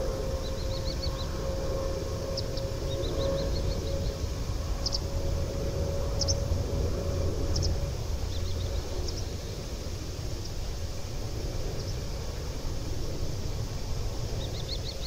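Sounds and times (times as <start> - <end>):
distant jet engines rumbling: 0.0 - 15.0
bird chirping: 4.8 - 5.1.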